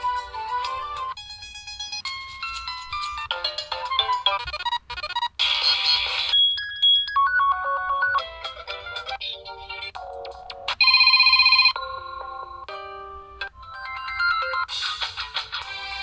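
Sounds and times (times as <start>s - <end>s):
phone ringtone melodies: 0.0s - 15.1s
rapid electronic beeping: 4.1s - 8.3s.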